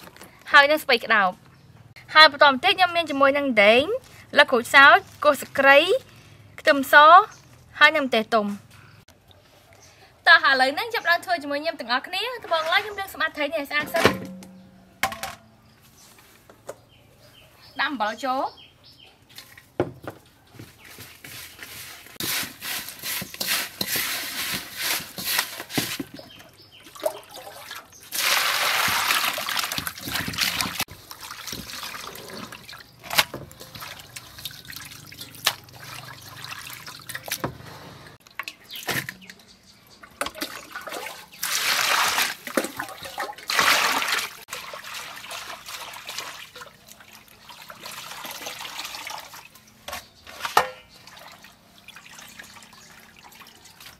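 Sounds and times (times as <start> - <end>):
water sloshing and splashing: 21.4 - 39.3, 40.0 - 53.9.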